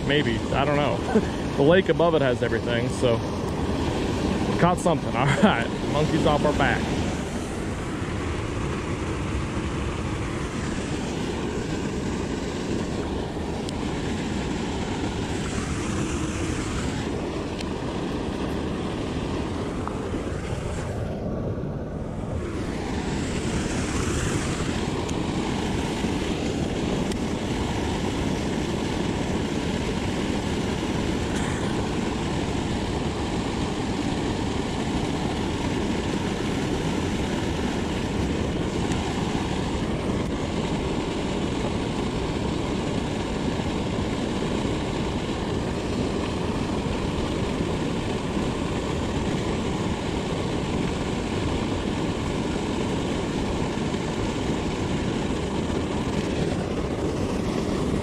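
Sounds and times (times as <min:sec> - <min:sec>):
water rushing from pipe: 0:00.0 - 0:58.0.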